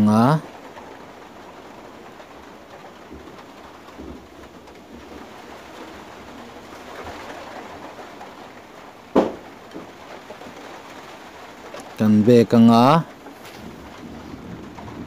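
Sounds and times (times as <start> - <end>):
sharp knock: 9.2 - 9.4.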